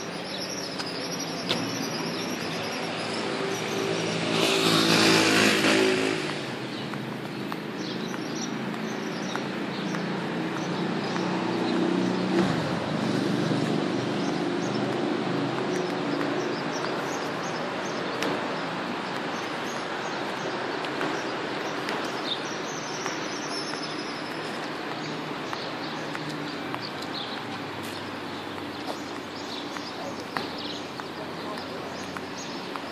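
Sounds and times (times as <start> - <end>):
city road traffic: 0.0 - 32.9
small birds chirping: 0.0 - 32.9
vehicle passing loudly: 3.4 - 6.8, 9.6 - 16.6.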